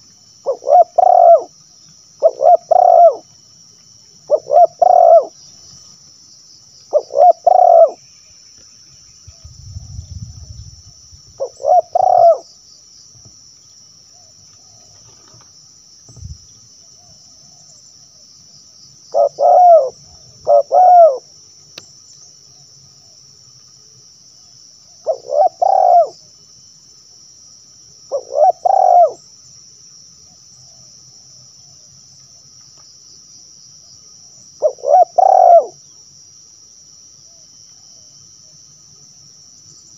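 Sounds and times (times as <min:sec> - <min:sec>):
dove cooing: 0:00.4 - 0:01.6, 0:02.2 - 0:03.3, 0:04.3 - 0:05.4, 0:06.9 - 0:08.0, 0:11.4 - 0:12.5, 0:19.1 - 0:21.3, 0:25.0 - 0:26.2, 0:28.1 - 0:29.2, 0:34.6 - 0:35.8.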